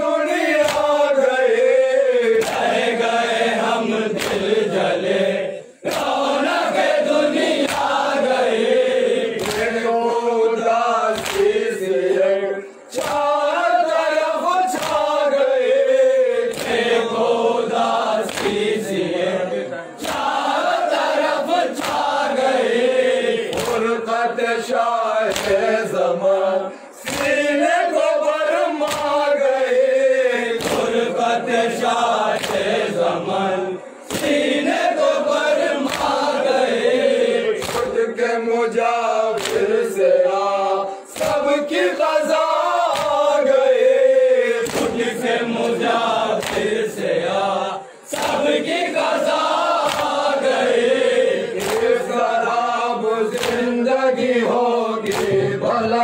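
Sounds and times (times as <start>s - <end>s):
men chanting in unison: 0.0s - 56.0s
hands slapping chests: 0.5s - 1.0s, 2.2s - 2.8s, 4.1s - 4.7s, 5.8s - 6.4s, 7.4s - 8.2s, 9.3s - 9.9s, 11.1s - 11.7s, 14.6s - 15.2s, 16.5s - 17.2s, 17.8s - 18.8s, 20.0s - 22.2s, 23.5s - 23.9s, 25.3s - 25.7s, 27.0s - 27.5s, 28.8s - 29.3s, 30.5s - 31.2s, 32.3s - 32.9s, 34.0s - 34.7s, 35.8s - 36.4s, 37.6s - 38.0s, 39.3s - 40.0s, 41.1s - 41.9s, 42.9s - 43.4s, 44.6s - 47.0s, 48.1s - 50.6s, 51.6s - 52.1s, 53.3s - 53.8s, 55.0s - 55.6s.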